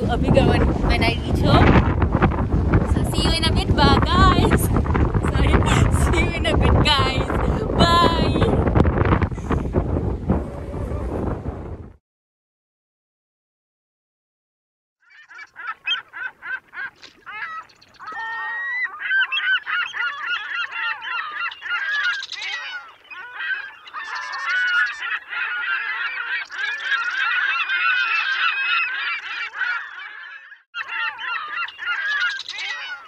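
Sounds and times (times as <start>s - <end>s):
flock of birds honking: 15.1s - 33.0s.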